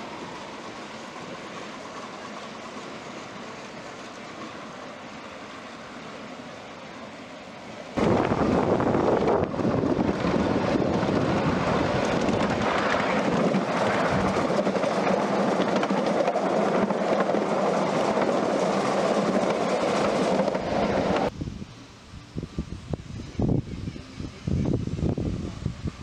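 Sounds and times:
miniature train running on track: 0:00.0 - 0:06.6, 0:08.4 - 0:21.3.

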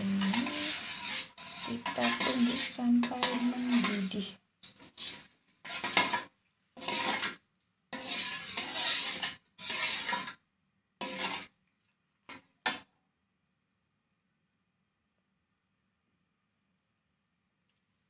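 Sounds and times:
metal ladle scraping a wok: 0:00.0 - 0:10.4, 0:11.0 - 0:11.5.

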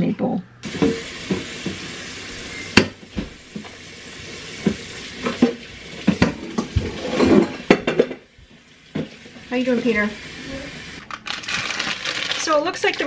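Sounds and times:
faucet running into sink: 0:00.6 - 0:11.0
metal pitcher knocking sink: 0:00.7 - 0:01.9, 0:04.6 - 0:08.3
dishes clinking: 0:04.6 - 0:08.2.

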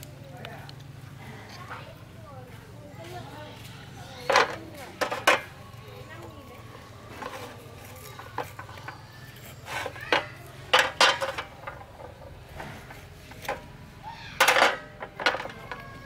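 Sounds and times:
metal cookware clattering: 0:04.2 - 0:05.6, 0:09.8 - 0:13.7, 0:14.4 - 0:16.0.

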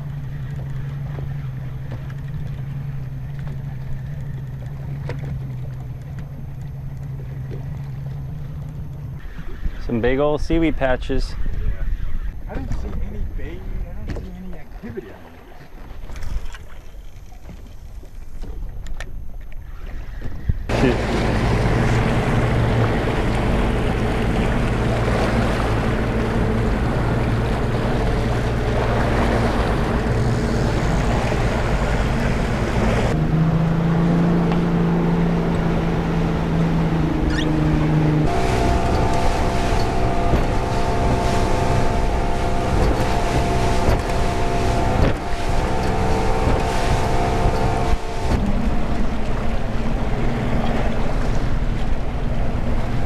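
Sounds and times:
outboard motor running: 0:00.0 - 0:53.0
water rushing past hull: 0:12.6 - 0:53.0.

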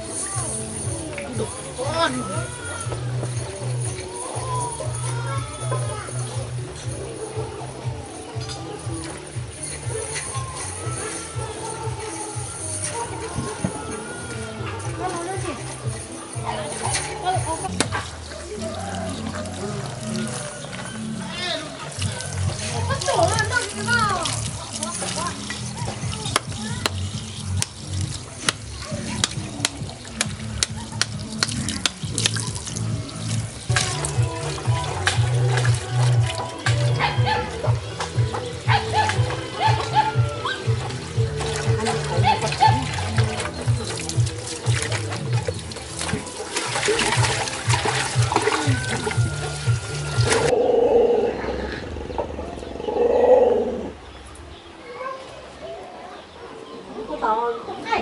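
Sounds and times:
water running and splashing: 0:00.0 - 0:50.6
wet cutting sounds: 0:21.9 - 0:37.1.

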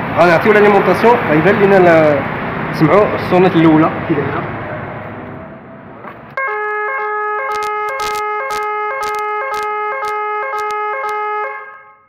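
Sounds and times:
electronic alarm siren: 0:06.4 - 0:12.0.

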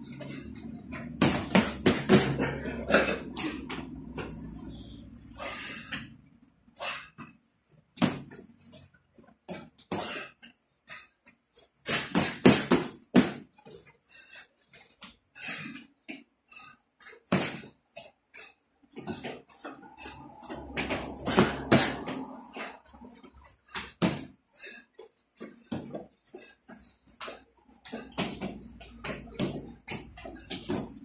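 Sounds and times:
boxing gloves punching: 0:00.2 - 0:04.3, 0:08.0 - 0:08.4, 0:11.8 - 0:13.5, 0:17.3 - 0:17.7, 0:20.0 - 0:22.7, 0:23.7 - 0:24.4, 0:25.4 - 0:26.0, 0:27.2 - 0:31.0.

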